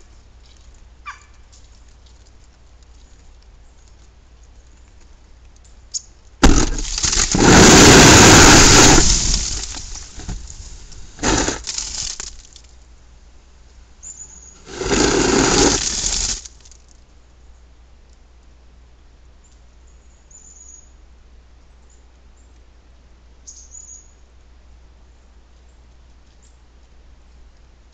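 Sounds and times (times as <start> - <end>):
snow and ice sliding off roof: 6.4 - 12.6, 14.5 - 16.7.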